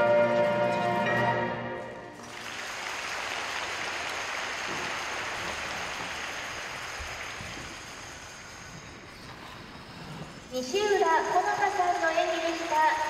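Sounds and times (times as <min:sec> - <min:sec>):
music notes: 0:00.0 - 0:02.2
audience applause: 0:02.2 - 0:09.1, 0:11.2 - 0:13.0.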